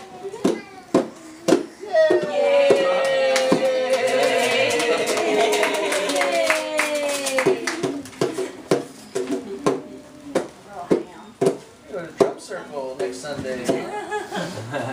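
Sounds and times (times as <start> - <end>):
child slapping toy drum: 0.3 - 4.3, 7.1 - 12.4
people clapping: 1.6 - 9.8.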